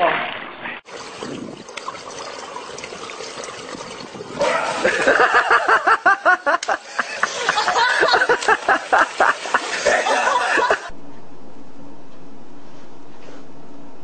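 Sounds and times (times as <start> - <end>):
person laughing hard: 4.4 - 10.9.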